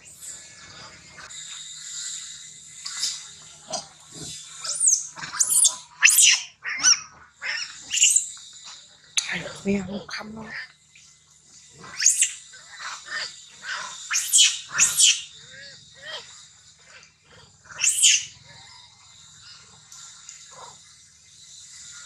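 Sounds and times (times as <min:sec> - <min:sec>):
baby monkey shrieking: 0:02.8 - 0:08.3, 0:10.1 - 0:10.7, 0:11.8 - 0:16.3, 0:17.7 - 0:18.4
soft monkey squeaks: 0:04.6 - 0:08.3, 0:11.9 - 0:12.4, 0:14.1 - 0:16.2, 0:17.8 - 0:18.3.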